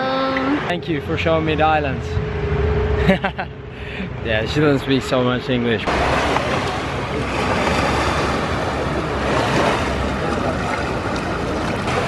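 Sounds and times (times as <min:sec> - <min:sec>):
low steady rumble: 0:00.0 - 0:12.0
small waves washing on sand: 0:05.9 - 0:12.0.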